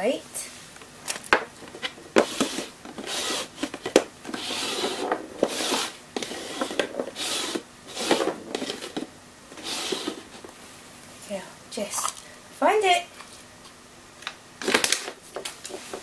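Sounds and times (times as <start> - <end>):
plastic cups scraping on board: 1.6 - 10.5.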